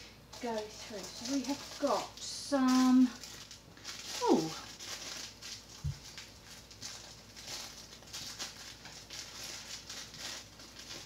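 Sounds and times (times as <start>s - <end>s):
plastic packaging crinkling: 0.2s - 11.0s.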